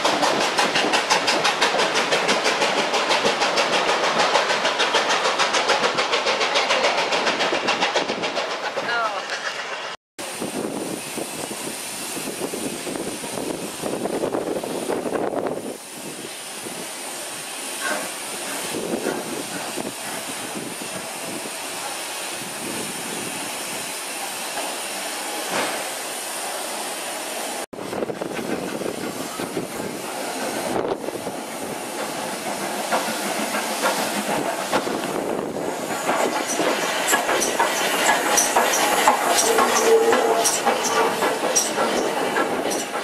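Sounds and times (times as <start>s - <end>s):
wheels clattering over rail joints: 0.0s - 10.0s, 31.9s - 43.0s
steam hissing: 0.0s - 43.0s
steam locomotive running: 0.0s - 43.0s.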